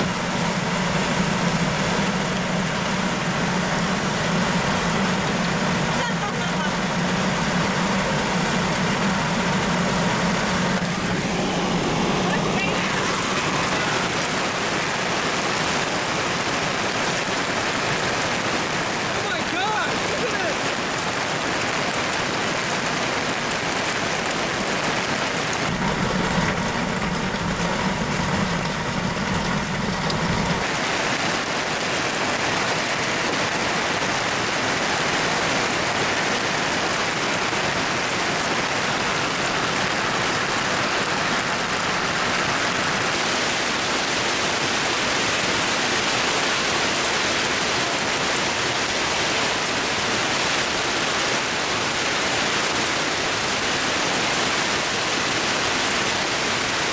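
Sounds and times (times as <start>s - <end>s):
low hum: 0.0s - 14.3s, 24.9s - 30.7s
hail and heavy rain pelting: 0.0s - 56.9s.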